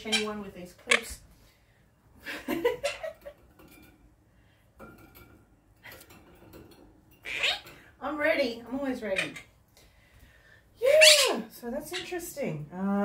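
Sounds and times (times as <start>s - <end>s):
metal clips clinking on wire cage: 3.1s - 4.1s, 4.8s - 7.9s.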